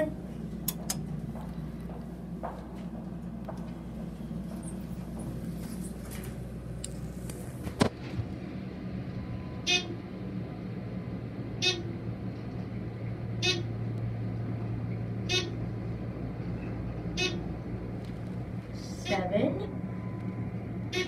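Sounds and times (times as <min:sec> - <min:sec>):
elevator car humming: 0:00.0 - 0:21.0
elevator floor beep: 0:09.2 - 0:10.0, 0:11.6 - 0:11.9, 0:13.4 - 0:13.7, 0:15.2 - 0:15.6, 0:17.1 - 0:17.5, 0:19.7 - 0:21.0.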